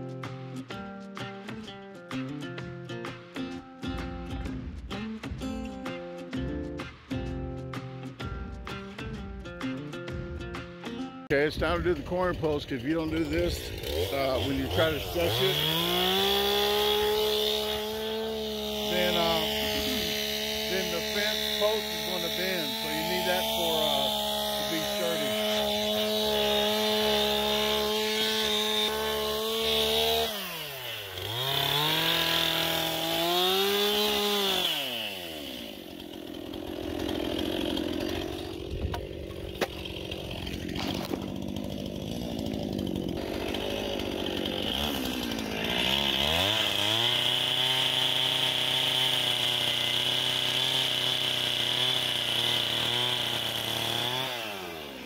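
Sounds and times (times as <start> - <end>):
small petrol engine revving: 13.4 - 55.0.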